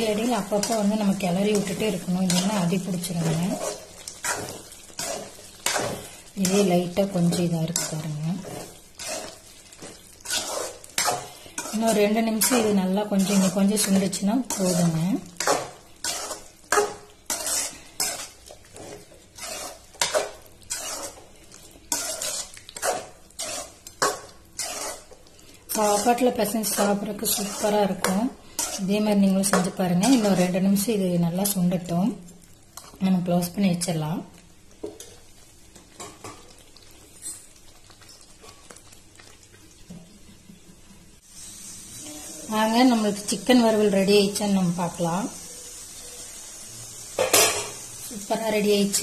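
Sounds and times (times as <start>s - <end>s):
metal spoon scraping a pan: 0.0s - 30.9s.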